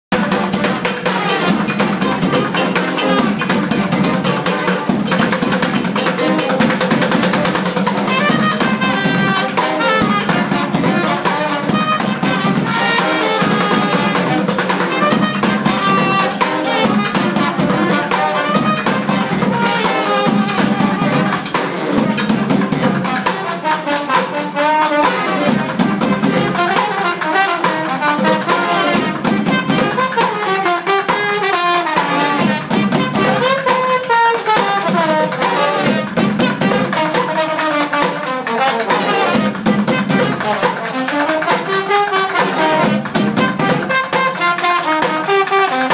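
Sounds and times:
bucket and metal drum percussion: 0:00.1 - 0:45.9
saxophone: 0:00.1 - 0:45.9
trombones: 0:00.1 - 0:45.9.

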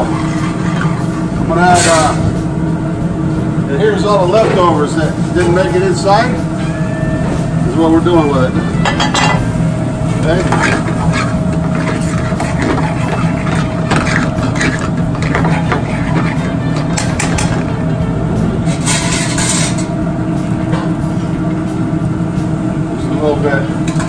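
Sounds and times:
kitchen range and ventilation drone: 0:00.0 - 0:24.0
metal tongs scraping in a pan: 0:10.2 - 0:17.7.

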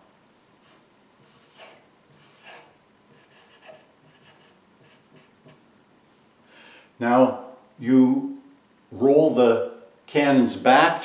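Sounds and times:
marker scratching on paper: 0:00.6 - 0:05.6.

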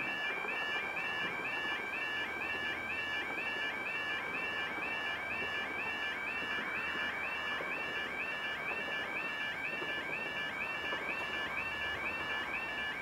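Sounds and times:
two-tone warning alarm: 0:00.0 - 0:13.0.

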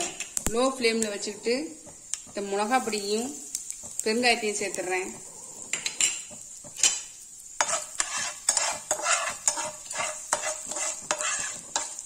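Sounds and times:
spices sizzling in oil: 0:00.0 - 0:12.0
utensil scraping frying pan: 0:03.8 - 0:12.0.

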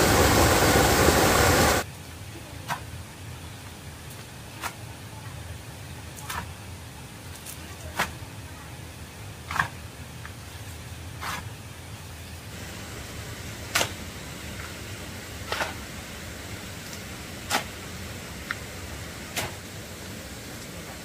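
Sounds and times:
low background hum: 0:00.0 - 0:21.0.

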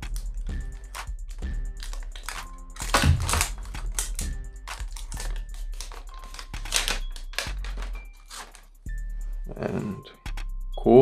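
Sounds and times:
packaging sleeve crinkling: 0:00.0 - 0:08.8
background music: 0:00.0 - 0:11.0.

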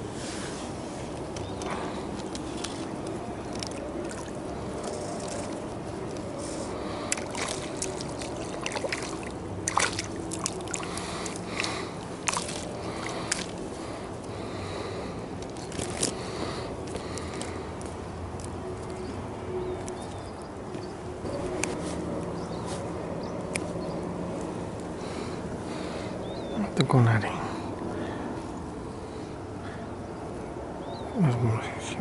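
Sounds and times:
low background noise: 0:00.0 - 0:32.0
fish splashing in water: 0:01.5 - 0:17.7.

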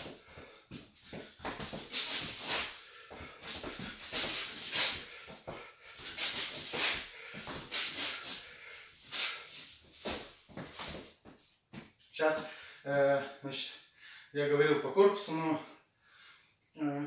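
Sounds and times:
sharp hissing exhales: 0:01.7 - 0:05.3, 0:06.0 - 0:10.2.

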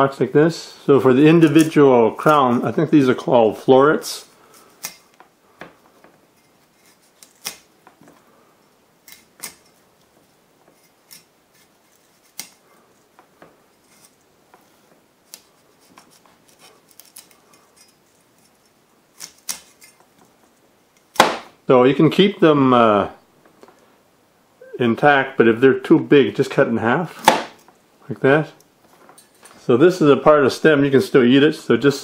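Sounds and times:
knife snapping through broccoli: 0:07.2 - 0:07.7.

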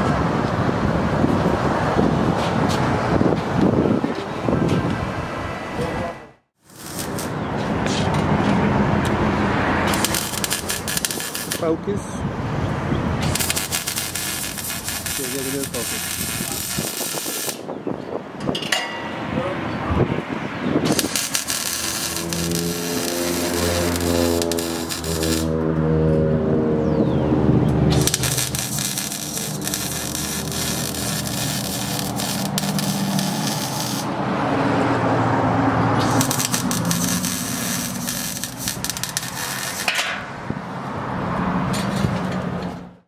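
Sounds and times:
welding arc crackling: 0:06.6 - 0:07.4, 0:09.8 - 0:11.7, 0:13.2 - 0:17.7, 0:20.8 - 0:25.6, 0:27.9 - 0:34.2, 0:36.0 - 0:40.0.

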